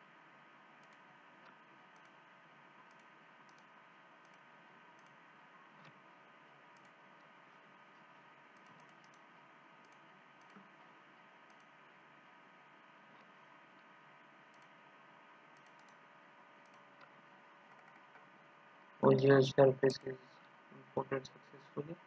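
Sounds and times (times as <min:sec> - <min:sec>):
computer mouse clicks: 0:00.8 - 0:02.2, 0:02.8 - 0:05.2, 0:06.7 - 0:07.3, 0:07.9 - 0:11.8, 0:13.2 - 0:14.8, 0:15.5 - 0:16.0, 0:16.6 - 0:18.2
steady low hiss: 0:19.0 - 0:22.0.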